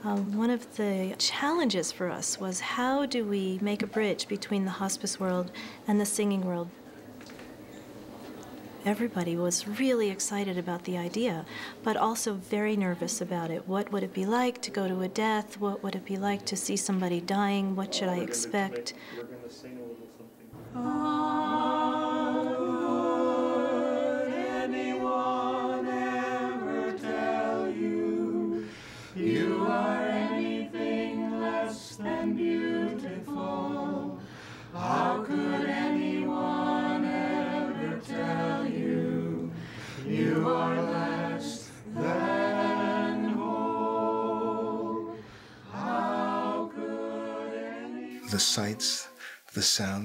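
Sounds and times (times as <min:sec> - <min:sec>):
a cappella chorus singing: 0:20.6 - 0:49.4.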